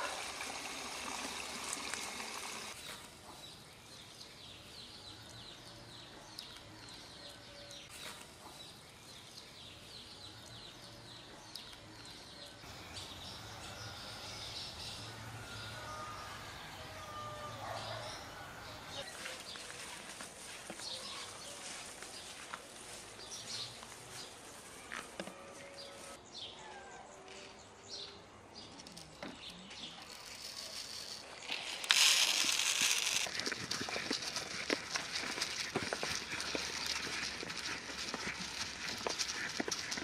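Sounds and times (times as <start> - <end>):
grain pouring into trough: 0.0 - 2.8, 30.1 - 39.9
goat eating with clicks: 28.8 - 40.0.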